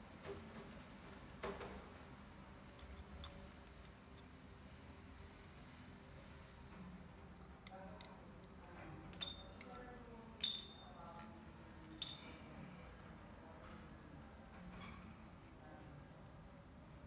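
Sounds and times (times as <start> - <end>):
small metal clinks: 9.1 - 12.5.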